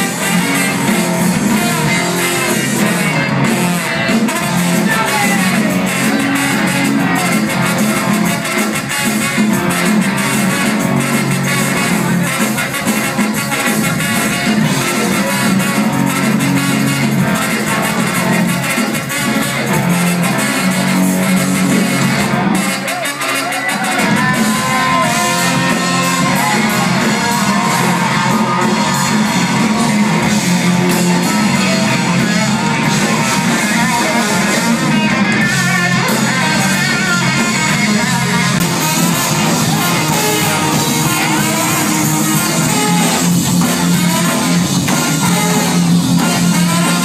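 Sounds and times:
electric guitar: 0.0 - 47.0
live band playing: 0.0 - 47.0
saxophones: 0.0 - 47.0
trombone: 0.0 - 47.0.

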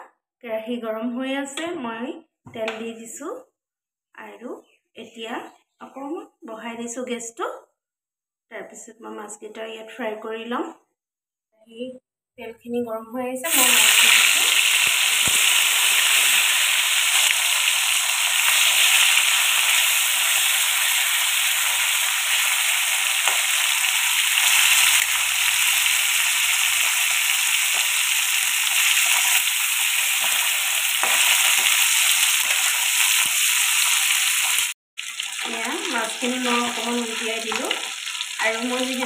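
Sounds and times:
fish sizzling in hot oil: 13.5 - 39.0
spatula turning fish: 13.5 - 39.0.

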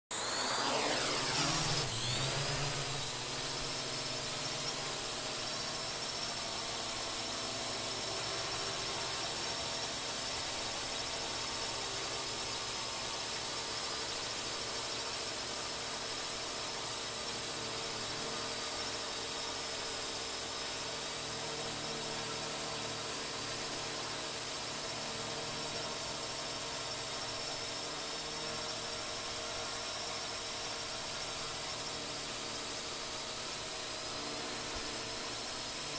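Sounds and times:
drone propellers whining: 0.1 - 14.4.

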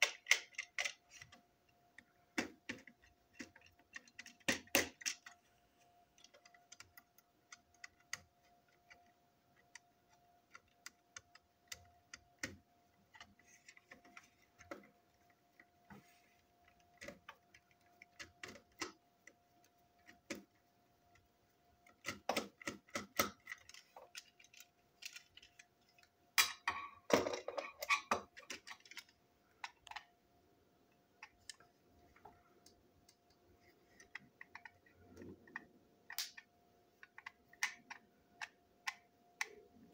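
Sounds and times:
screwdriver clicking and scraping: 0.0 - 1.4
parts clicking and clattering: 0.0 - 5.5, 6.1 - 30.2, 30.9 - 39.6.

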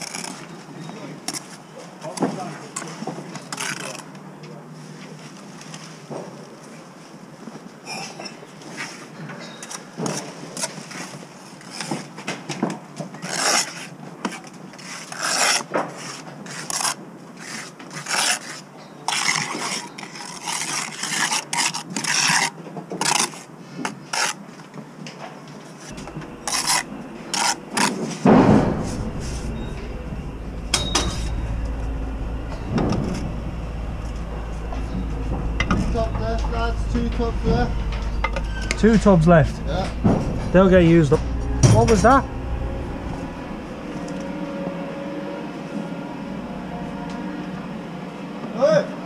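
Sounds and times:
trowel scraping and rasping: 25.9 - 28.3
loud bump: 25.9 - 47.8
steady low rumble: 25.9 - 48.2.

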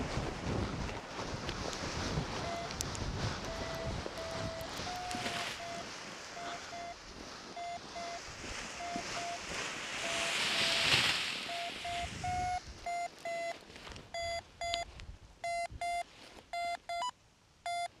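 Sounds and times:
wind noise: 0.0 - 16.0
variometer beeping: 2.4 - 2.8, 3.4 - 7.0, 7.6 - 8.2, 8.8 - 9.4, 10.0 - 10.9, 11.5 - 17.9.

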